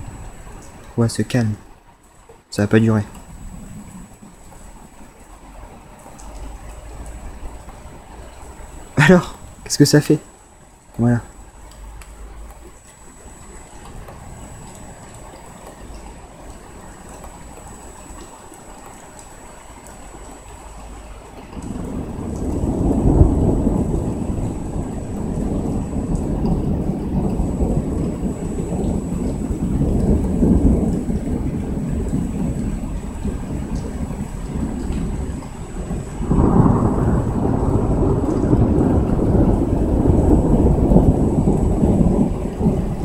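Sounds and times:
steady rain: 0.0 - 43.0
thunder rumbling: 0.0 - 43.0.

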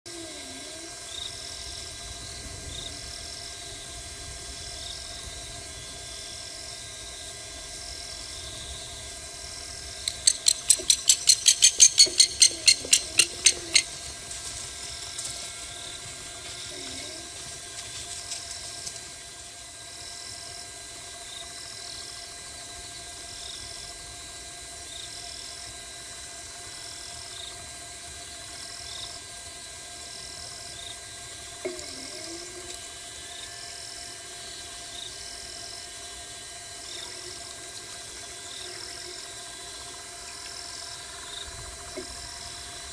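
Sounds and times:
insect trilling: 0.1 - 24.1, 30.1 - 42.9
rapid sharp clicking notes: 10.0 - 14.1.

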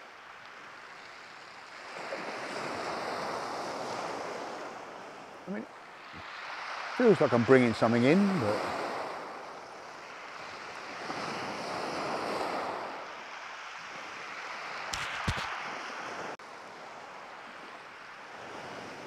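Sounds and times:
surf washing on shingle: 0.0 - 16.4
wind on microphone: 13.8 - 17.6.

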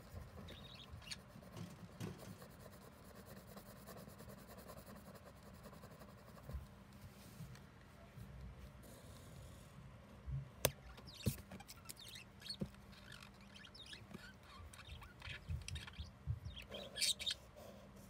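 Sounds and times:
pen scratching on paper: 2.2 - 6.6.

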